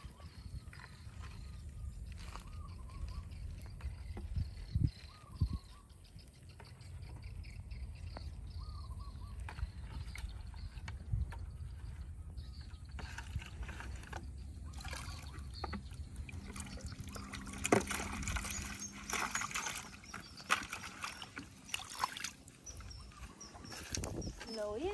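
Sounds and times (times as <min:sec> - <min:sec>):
water splashing into pond: 0:14.6 - 0:23.0.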